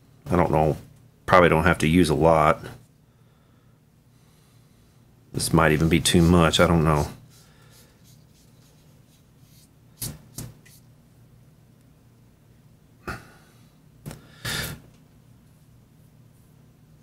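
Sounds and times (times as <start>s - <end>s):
short brushing rub: 5.8s - 10.9s.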